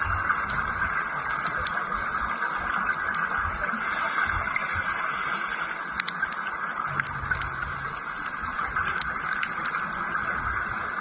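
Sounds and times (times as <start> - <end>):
exhaled bubbles rumbling: 0.0 - 11.0
underwater hiss: 3.7 - 5.8.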